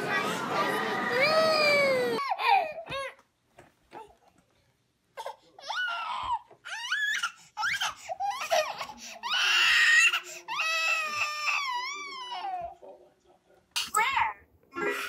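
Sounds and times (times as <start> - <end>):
baby squealing and whining: 5.6 - 12.7.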